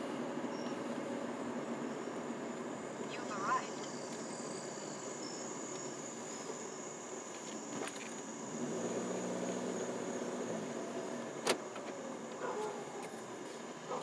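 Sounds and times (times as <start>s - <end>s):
high insect trill: 0.1s - 14.0s
low motor hum: 8.3s - 14.0s.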